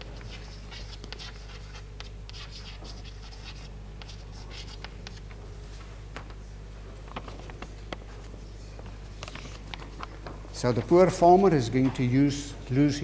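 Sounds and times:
chalk scratching on a chalkboard: 0:00.0 - 0:05.2
chalk tapping: 0:00.0 - 0:05.2
steady low hum: 0:00.0 - 0:13.0.

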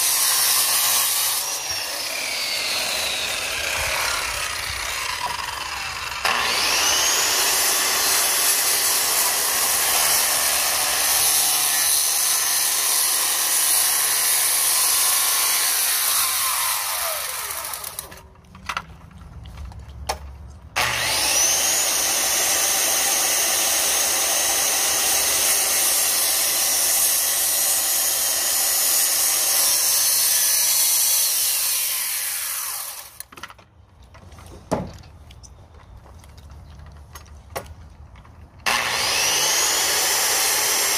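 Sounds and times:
circular saw cutting wood: 0:00.0 - 0:18.3, 0:20.8 - 0:33.3, 0:38.6 - 0:40.9.

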